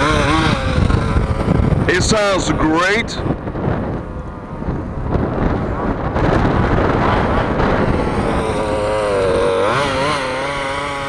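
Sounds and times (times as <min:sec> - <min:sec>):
model car two-stroke engine buzzing: 0:00.0 - 0:02.0, 0:07.3 - 0:11.0.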